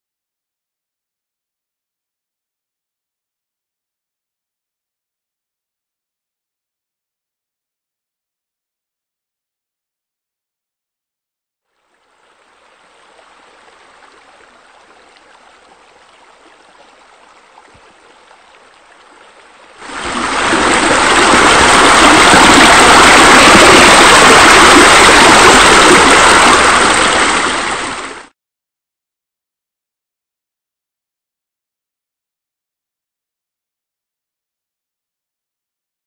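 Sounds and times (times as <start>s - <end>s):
running water: 11.7s - 28.3s.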